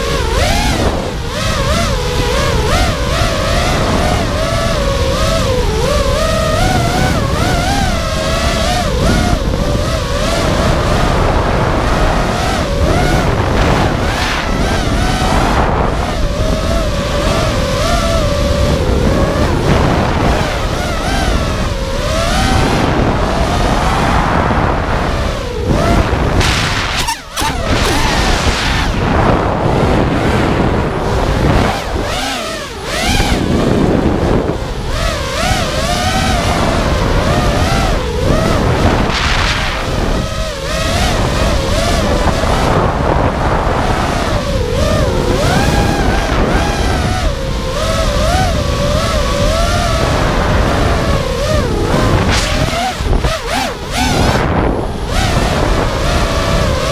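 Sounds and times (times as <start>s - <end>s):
drone motors whining: 0.0s - 56.9s
low rumble of prop wash and wind: 0.0s - 56.9s.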